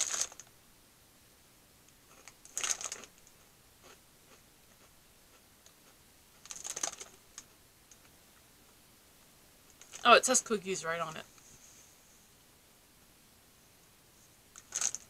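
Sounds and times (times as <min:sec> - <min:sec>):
plastic wrapper crinkling: 0:00.0 - 0:00.5, 0:02.1 - 0:03.2, 0:06.4 - 0:07.5, 0:09.8 - 0:10.1, 0:14.6 - 0:15.0.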